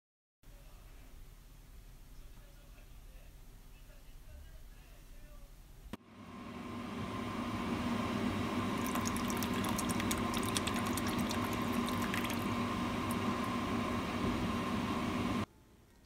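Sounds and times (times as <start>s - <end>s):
steady background hum: 0.5s - 16.0s
liquid pouring into pan: 8.8s - 13.3s.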